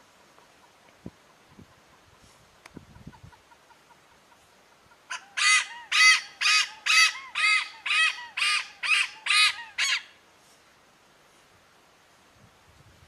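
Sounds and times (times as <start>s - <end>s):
hornbill calling: 5.0s - 10.2s.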